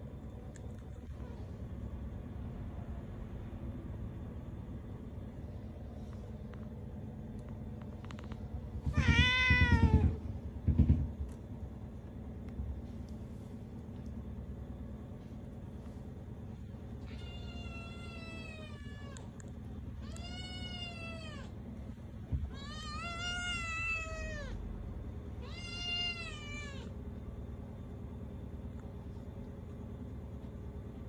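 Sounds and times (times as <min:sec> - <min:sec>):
steady low hum: 0:00.0 - 0:31.0
cat meowing: 0:08.9 - 0:10.2, 0:17.0 - 0:19.3, 0:20.0 - 0:21.5, 0:22.4 - 0:24.6, 0:25.4 - 0:26.9.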